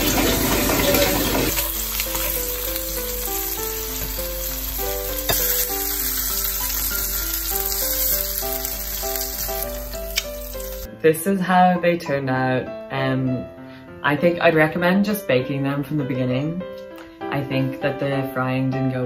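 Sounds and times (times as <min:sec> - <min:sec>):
food sizzling in a frying pan: 0:00.0 - 0:10.9
background music: 0:00.0 - 0:19.0.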